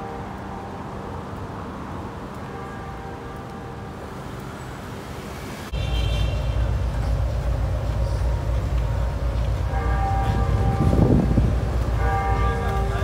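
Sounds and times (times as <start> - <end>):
faint bells ringing: 0.0 - 5.1, 6.6 - 13.0
street traffic rumble: 0.0 - 13.0.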